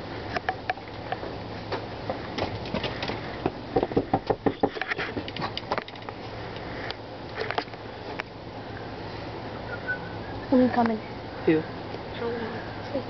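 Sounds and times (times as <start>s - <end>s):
steady low hum: 0.0s - 13.0s
knocking on metal door: 3.8s - 4.8s.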